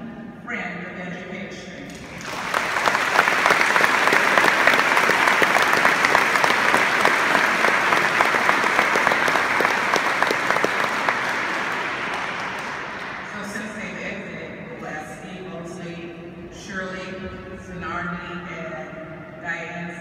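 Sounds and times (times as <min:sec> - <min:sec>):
audience applauding: 0:01.9 - 0:13.5.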